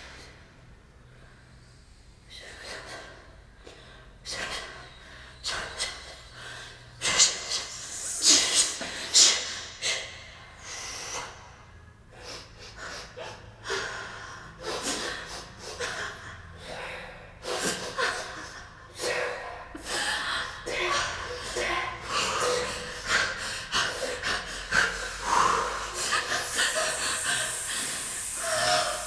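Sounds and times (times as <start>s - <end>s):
woman gasping: 12.1s - 29.0s.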